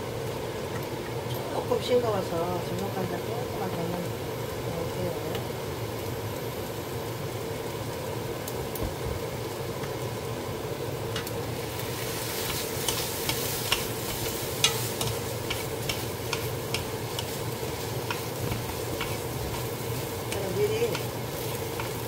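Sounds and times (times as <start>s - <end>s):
mushrooms and onion frying: 0.0s - 22.0s
steady hum: 0.0s - 22.0s
wooden spatula tapping a pan: 12.4s - 17.4s, 18.0s - 22.0s.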